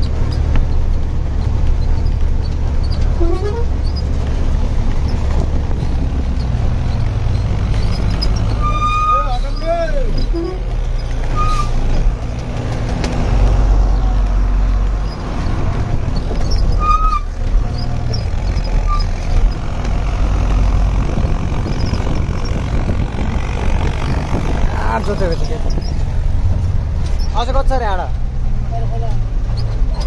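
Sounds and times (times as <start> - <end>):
truck engine rumbling: 0.0 - 30.0.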